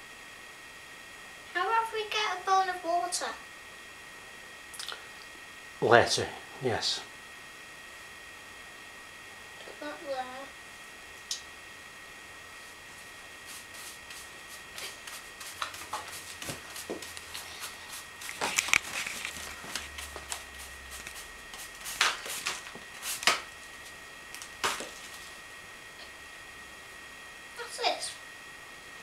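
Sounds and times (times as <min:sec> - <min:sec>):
hand brush sweeping grit: 0:13.4 - 0:23.4.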